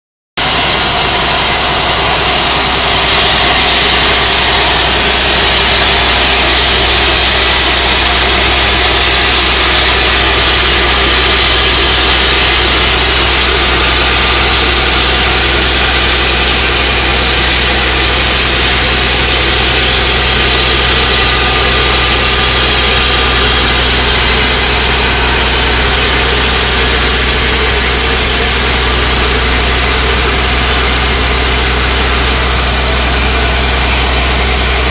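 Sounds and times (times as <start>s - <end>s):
diesel engine humming: 0.4s - 34.9s
loud constant hiss: 0.4s - 34.9s.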